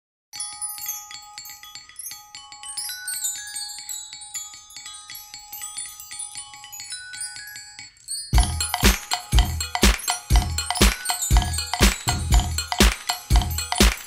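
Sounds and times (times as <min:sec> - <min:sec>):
tinkling electropop melody: 0:00.3 - 0:14.0
heavy kick drum beat: 0:08.4 - 0:14.0.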